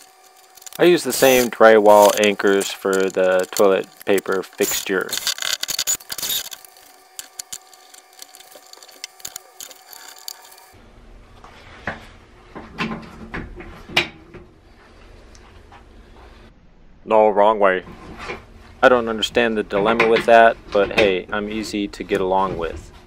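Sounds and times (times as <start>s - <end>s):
screwdriver scraping and clicking: 0.0s - 10.8s
low hum: 14.2s - 19.7s.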